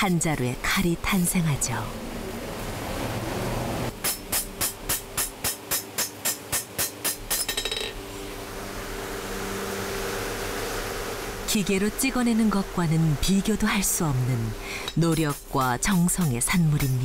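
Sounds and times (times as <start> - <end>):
steady hum: 0.0 - 17.0
hammer striking steel on anvil: 4.0 - 8.0.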